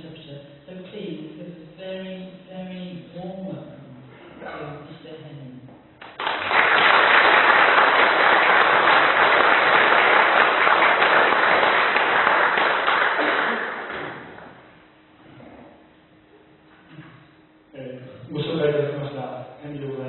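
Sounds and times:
audience applauding: 6.0s - 14.6s.

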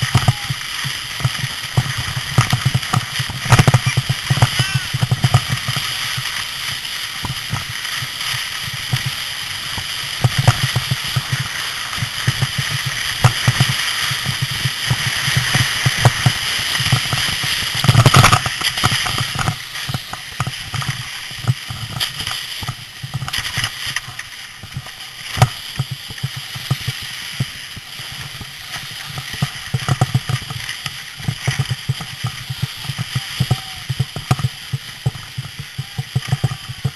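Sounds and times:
wind buffeting microphone: 0.0s - 23.8s.

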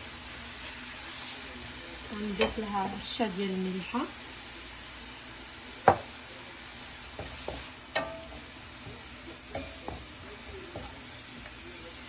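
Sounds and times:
onions sizzling in a pan: 0.0s - 12.0s
spatula knocking against pan: 7.1s - 11.0s.

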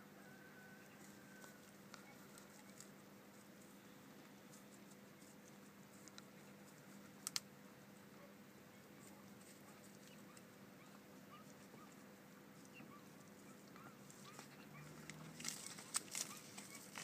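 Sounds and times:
donkey munching crunching: 14.1s - 17.0s.

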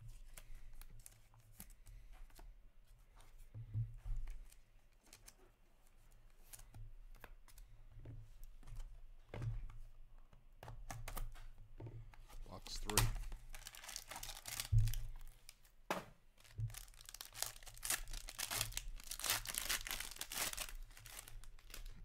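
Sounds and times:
cards clicking and rustling: 12.3s - 15.7s, 16.4s - 22.0s.

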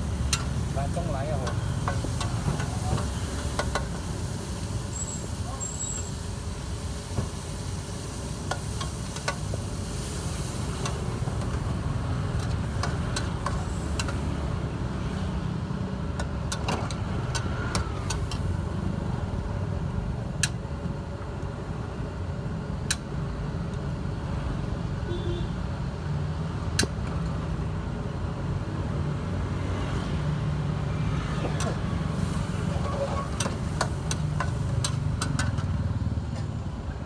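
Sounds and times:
food sizzling in a wok: 0.0s - 19.9s, 28.9s - 35.3s.

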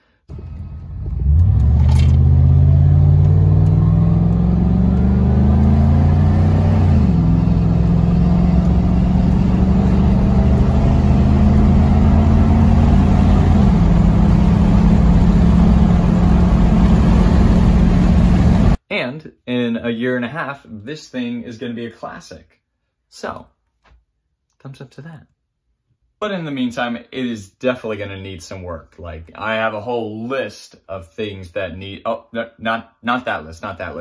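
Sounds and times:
pickup engine accelerating: 0.3s - 18.8s.

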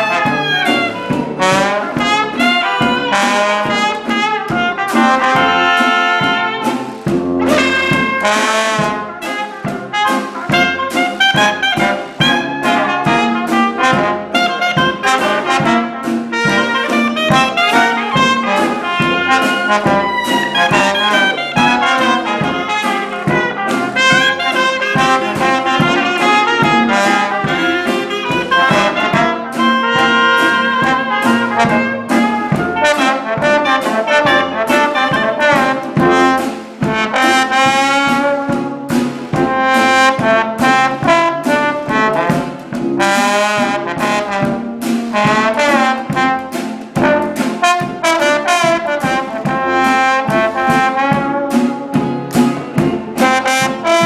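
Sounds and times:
trombone with wavering tone: 0.0s - 52.2s
bass drum beat: 0.0s - 54.0s.

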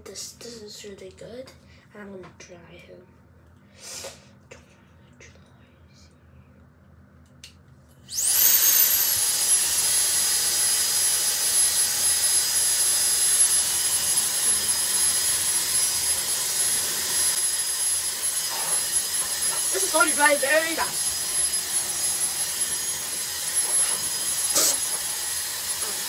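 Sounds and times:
hair dryer blowing with motor whine: 8.1s - 26.0s.

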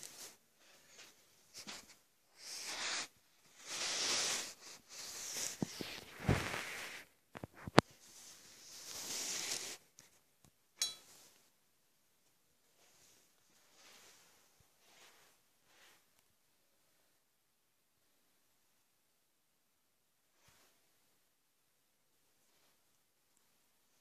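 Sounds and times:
short clink: 10.8s - 11.2s.

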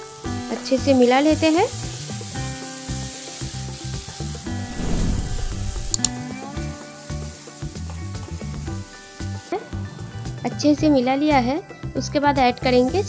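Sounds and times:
background music: 0.0s - 13.0s
chickpeas sizzling in a pan: 0.0s - 13.0s.

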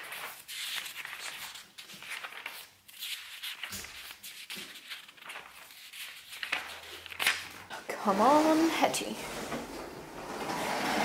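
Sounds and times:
paper pages rustling: 0.0s - 7.7s.

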